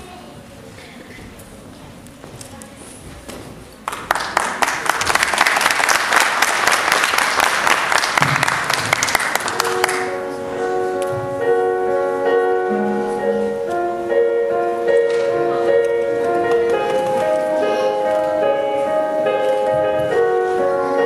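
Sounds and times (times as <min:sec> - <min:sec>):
audience applause: 0:03.8 - 0:10.2
slow piano: 0:07.6 - 0:21.0.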